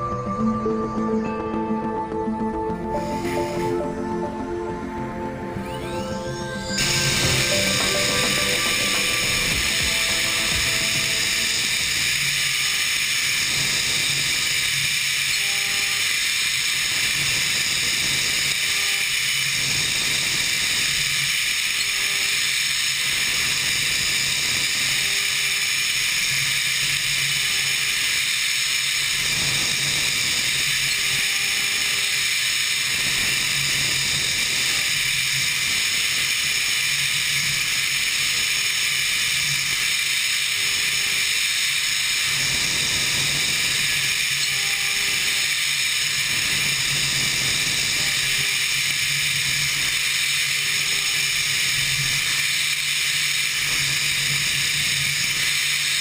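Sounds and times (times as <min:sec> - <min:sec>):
low hum: 0:00.0 - 0:12.4
milling machine spindle hiss: 0:02.3 - 0:56.0.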